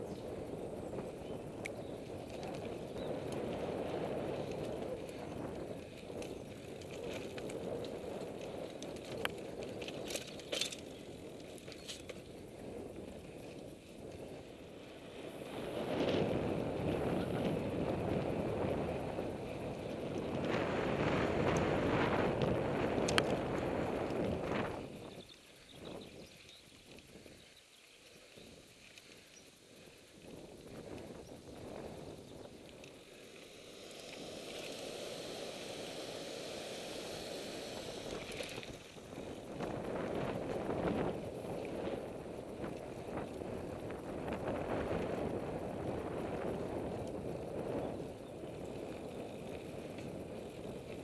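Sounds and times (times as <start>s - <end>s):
wind buffeting microphone: 0.0s - 27.6s, 28.2s - 51.0s
bike clicks and rattles: 0.0s - 51.0s.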